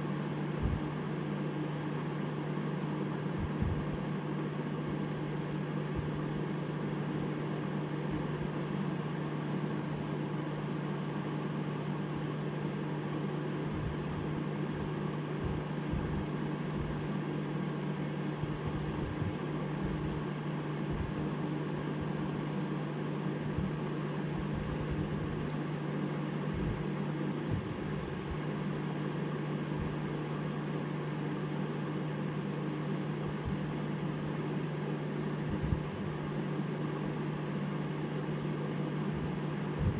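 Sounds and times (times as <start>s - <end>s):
aquarium air pump humming: 0.0s - 39.9s
soft low thumps: 3.4s - 3.9s, 15.4s - 17.0s, 18.6s - 20.2s, 20.9s - 21.2s, 26.5s - 28.4s, 35.5s - 36.1s.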